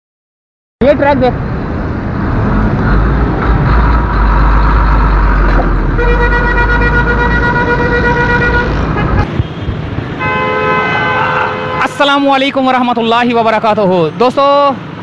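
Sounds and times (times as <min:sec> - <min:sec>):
road traffic: 0:00.8 - 0:15.0
vehicle horn: 0:06.0 - 0:12.1.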